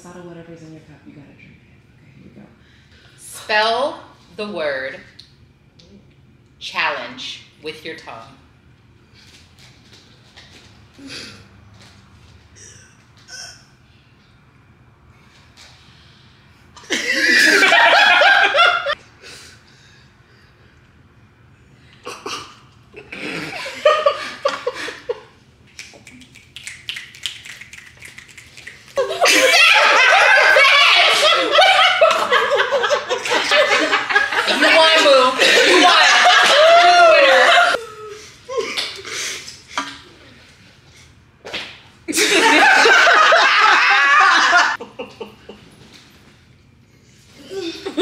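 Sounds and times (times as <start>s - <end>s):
women laughing loudly: 16.9s - 19.0s, 23.4s - 25.3s, 29.0s - 37.8s, 42.1s - 45.6s.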